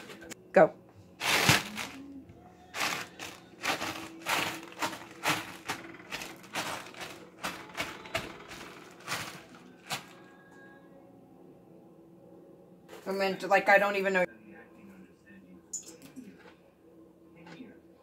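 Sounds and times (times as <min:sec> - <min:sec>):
chip bag crunching underfoot: 0:01.2 - 0:02.1, 0:02.7 - 0:10.2.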